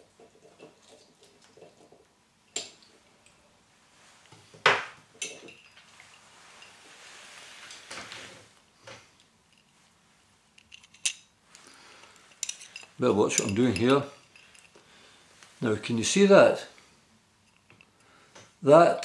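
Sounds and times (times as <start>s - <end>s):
soft rustling: 5.6s - 8.7s.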